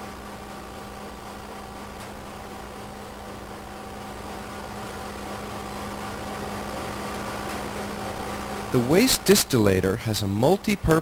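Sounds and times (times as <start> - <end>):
low machinery hum: 0.0 - 11.0.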